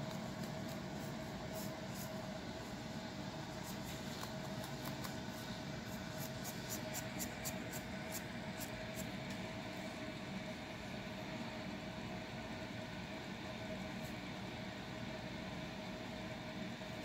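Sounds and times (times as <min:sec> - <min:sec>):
scratching strokes on scalp: 0:03.5 - 0:09.1.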